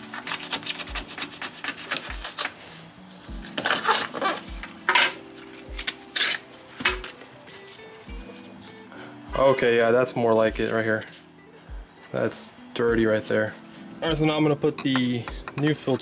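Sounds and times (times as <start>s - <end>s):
knife cutting paper filter: 0.0s - 2.6s, 3.5s - 5.2s, 5.8s - 7.2s
background music with beat: 2.1s - 2.4s, 3.2s - 16.0s.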